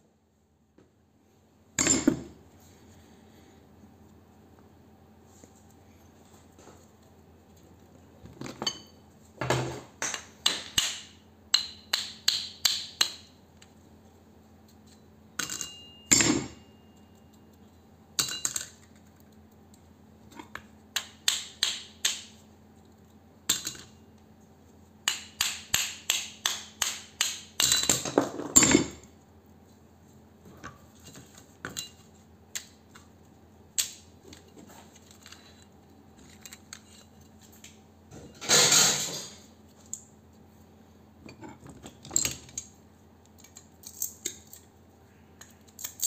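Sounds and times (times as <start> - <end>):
metal laminations clinking on steel: 15.4 - 16.7.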